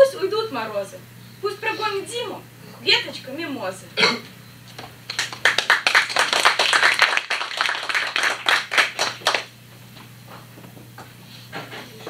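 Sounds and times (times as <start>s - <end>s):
audience applauding: 5.1s - 9.5s.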